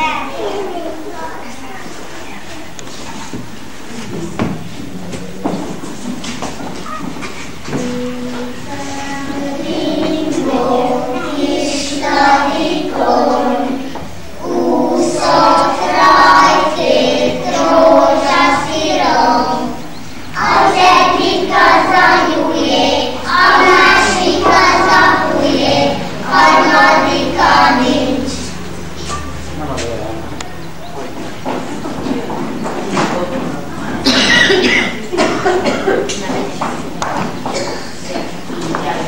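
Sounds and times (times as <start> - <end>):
young children singing together: 0.0 - 1.4, 6.8 - 29.5, 34.0 - 35.9.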